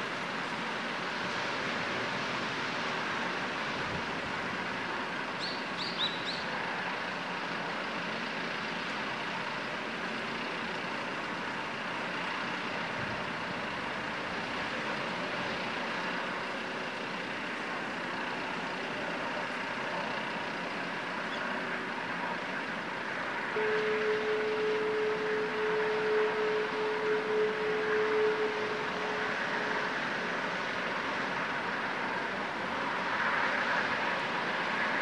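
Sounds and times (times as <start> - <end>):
jetfoil turbines rushing: 20.4 - 35.0.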